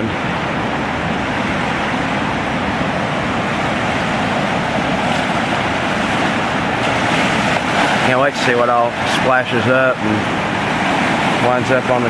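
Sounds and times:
river rushing in flood: 0.0s - 12.0s.

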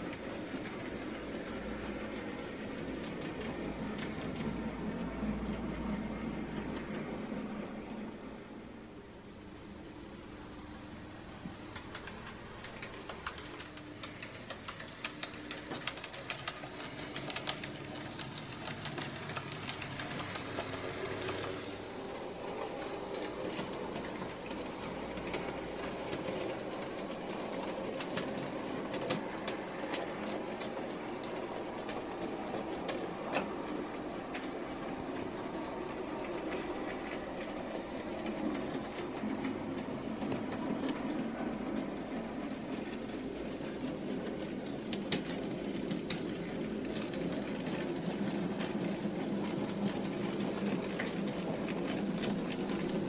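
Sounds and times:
model train running: 0.0s - 53.0s
model train motor whine: 15.2s - 24.4s
wheels clicking over rail joints: 22.2s - 53.0s.

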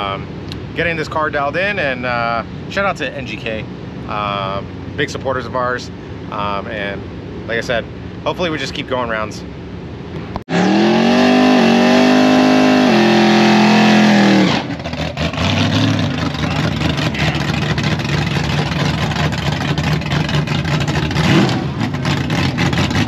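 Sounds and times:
car engine revving high: 10.4s - 23.0s
engine rough choppy idle: 14.6s - 23.0s.

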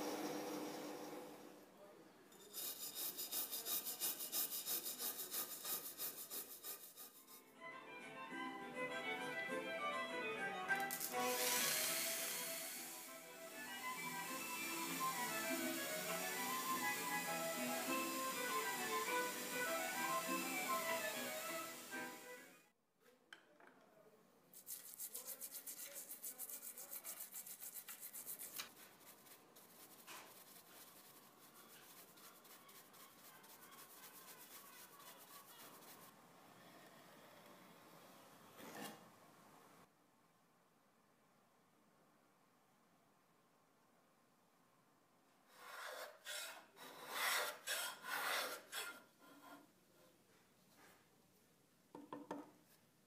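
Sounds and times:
brush scrubbing brass: 2.4s - 7.4s, 24.6s - 36.1s
hand plane rasping strokes: 2.6s - 7.4s, 45.5s - 49.7s.

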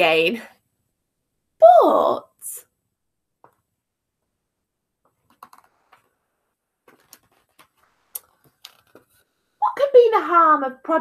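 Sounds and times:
small taps and clicks: 3.4s - 3.7s, 5.0s - 6.1s, 6.8s - 9.1s
paper rustling: 6.8s - 9.3s.

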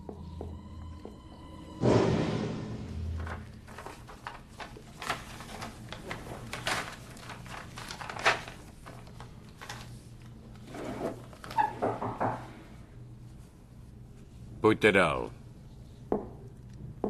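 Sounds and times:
paper rustling and crinkling: 3.2s - 11.7s.

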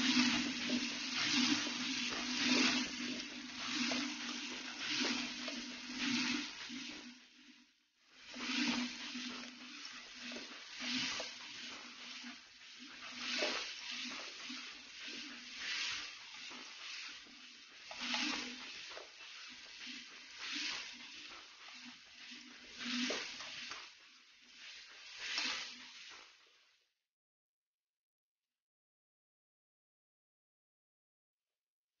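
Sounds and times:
plastic spatula scraping wok: 0.0s - 7.3s, 8.2s - 26.4s
vegetables sizzling in a wok: 0.0s - 26.6s.

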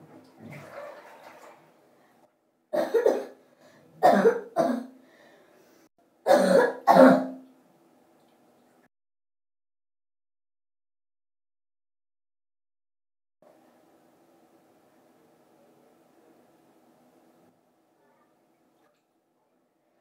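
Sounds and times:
person coughing: 2.8s - 3.4s, 4.0s - 5.0s, 6.3s - 7.4s.

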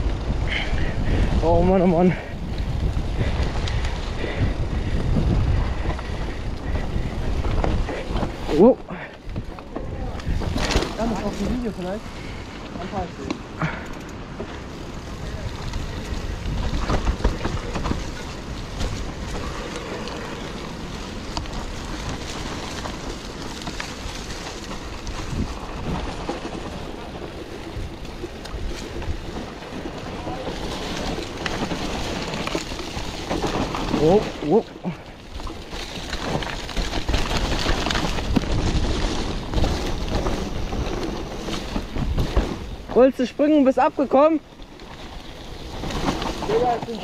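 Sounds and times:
wind rushing over microphone: 0.0s - 13.6s, 14.2s - 47.0s
bike clicks and rattles: 0.0s - 47.0s
tyres rolling over dirt: 0.0s - 47.0s.

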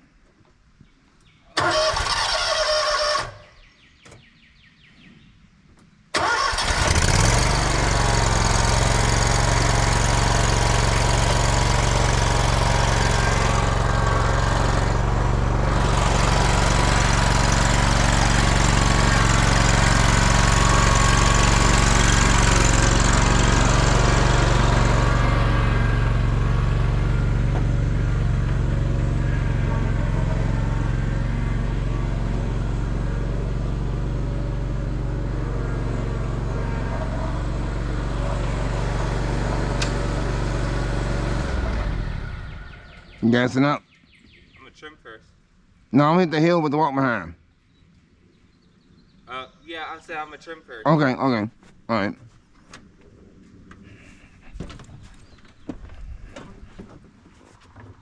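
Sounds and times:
mower engine cranking and starting: 1.6s - 3.5s, 6.1s - 42.9s.

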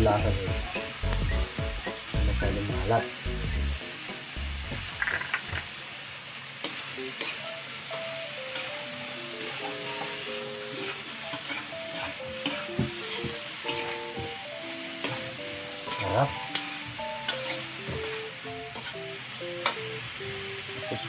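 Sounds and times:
vegetables sizzling in a wok: 0.0s - 21.0s
metal spatula scraping a wok: 10.8s - 14.0s, 15.9s - 19.0s.

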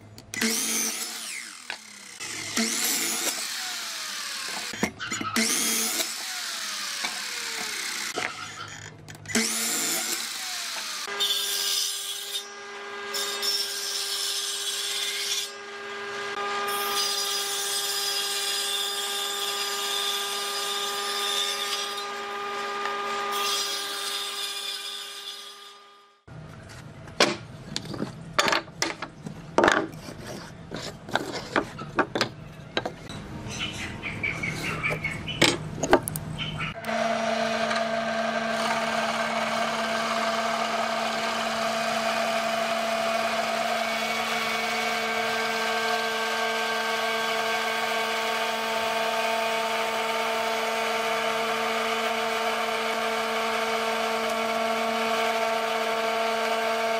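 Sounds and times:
table saw whining: 0.3s - 26.3s, 29.8s - 56.9s
drill press boring into wood: 0.4s - 11.1s, 36.8s - 56.9s.

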